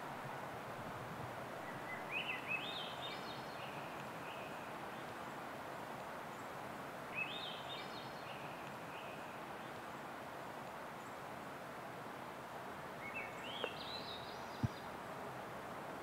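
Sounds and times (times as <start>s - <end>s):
outdoor background noise: 0.0s - 16.0s
songbird singing: 1.6s - 5.5s, 6.2s - 11.4s, 12.8s - 15.1s.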